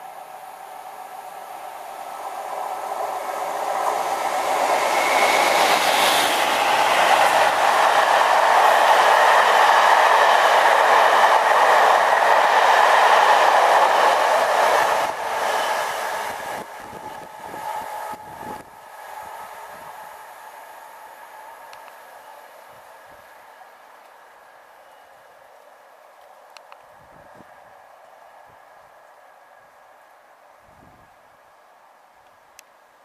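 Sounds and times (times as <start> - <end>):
diesel locomotives passing: 0.0 - 32.1
train wheels clattering on rails: 3.6 - 18.6.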